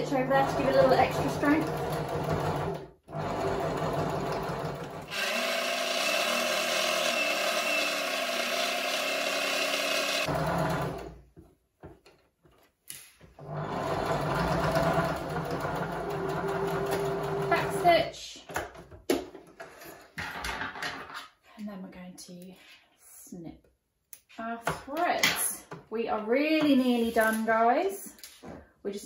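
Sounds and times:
electric sewing machine stitching: 0:00.0 - 0:11.2, 0:13.4 - 0:17.9.

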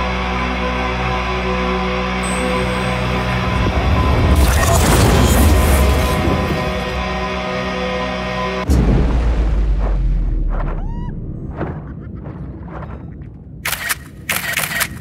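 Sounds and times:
deep rumbling boom: 0:08.6 - 0:13.6.

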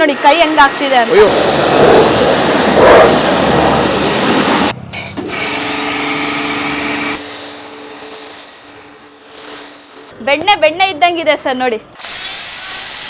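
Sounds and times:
pressure washer spraying hiss: 0:00.0 - 0:04.7
steady machine hum: 0:00.0 - 0:04.7.

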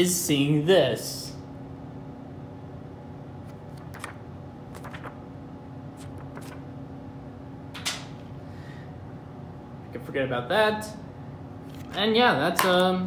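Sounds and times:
paper flyer rustling: 0:03.5 - 0:05.2, 0:05.9 - 0:06.7.

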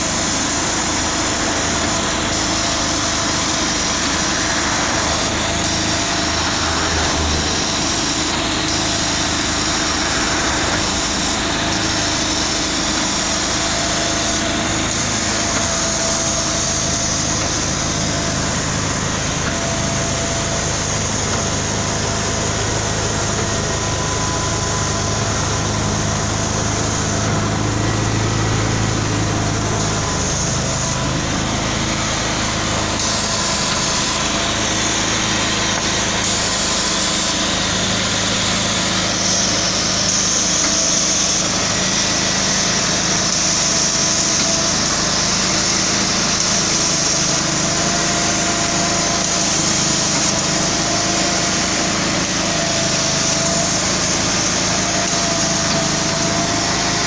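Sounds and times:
machinery hum: 0:00.0 - 0:57.0
truck engine running: 0:00.0 - 0:57.0.

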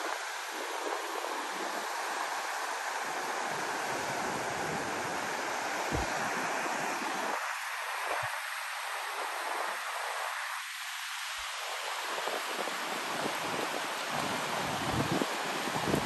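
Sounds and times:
wind on microphone: 0:00.0 - 0:10.5, 0:11.4 - 0:16.0
river rushing over rocks: 0:00.0 - 0:16.0
low bump: 0:05.9 - 0:06.3.

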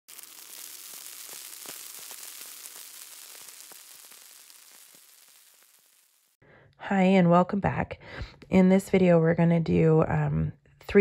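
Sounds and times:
fizzing carbonated bubbles: 0:00.0 - 0:06.4.

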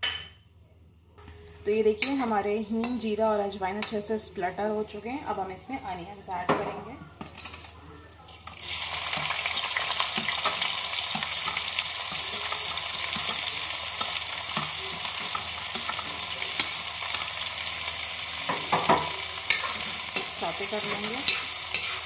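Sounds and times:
onions sizzling in hot oil: 0:08.5 - 0:22.0.

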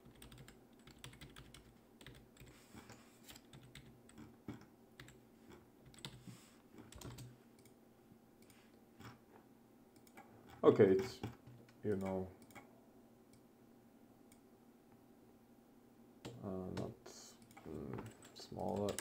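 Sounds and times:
computer keyboard keystrokes: 0:00.0 - 0:02.5, 0:03.3 - 0:05.2, 0:05.9 - 0:06.2, 0:06.9 - 0:07.7, 0:17.4 - 0:19.0.

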